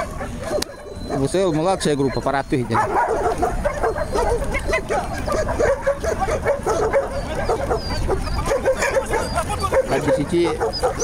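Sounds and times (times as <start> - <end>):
many dogs barking and yelping: 0.0 - 11.0.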